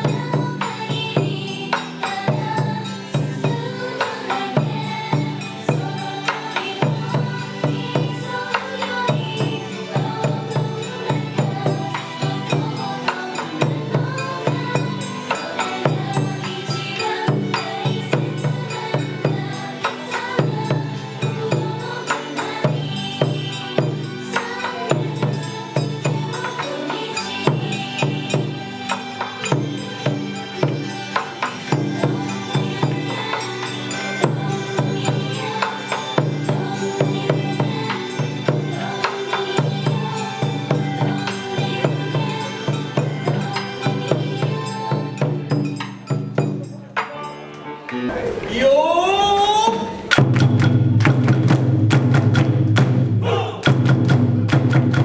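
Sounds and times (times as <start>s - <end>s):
pop song over loudspeakers: 0.0s - 50.3s, 53.2s - 53.8s
dance song playing: 48.1s - 50.1s
small drum beats: 48.1s - 55.0s
large barrel drum beats: 49.2s - 55.0s.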